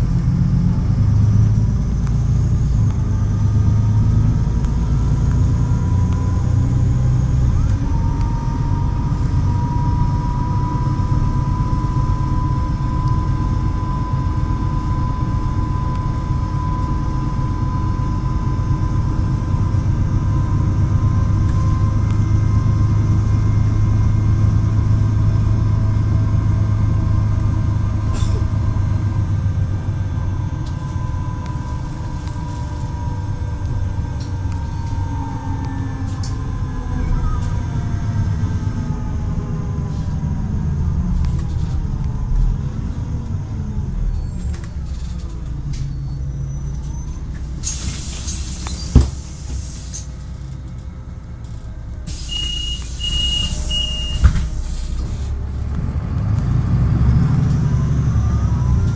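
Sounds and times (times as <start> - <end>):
bus engine whine: 0.0 - 58.9
door warning beeps: 52.1 - 54.7.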